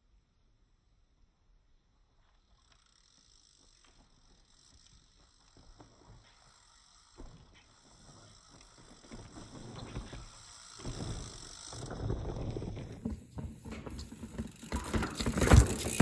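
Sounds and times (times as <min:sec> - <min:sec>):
bike tyres on dirt trail: 0:01.0 - 0:16.0
bike clattering over rocks: 0:09.1 - 0:16.0.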